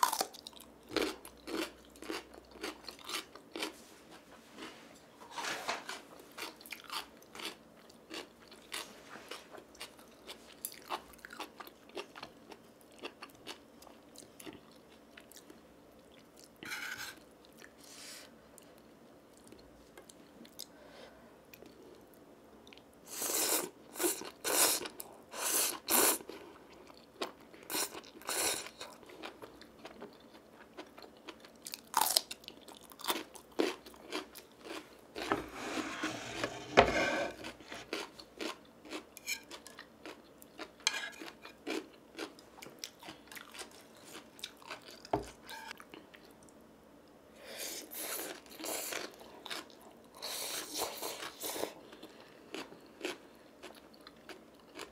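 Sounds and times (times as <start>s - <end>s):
chewing: 37.4s - 46.5s, 48.0s - 54.9s.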